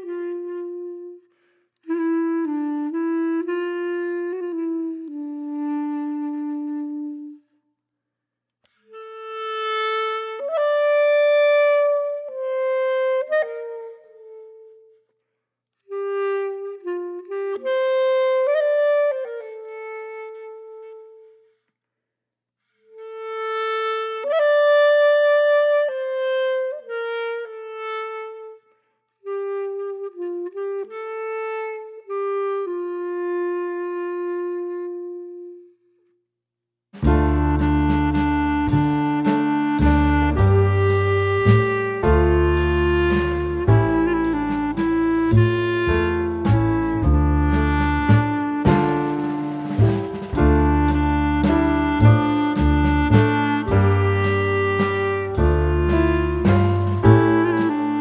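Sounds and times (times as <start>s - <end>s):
slow solo instrumental melody: 37.0s - 58.0s.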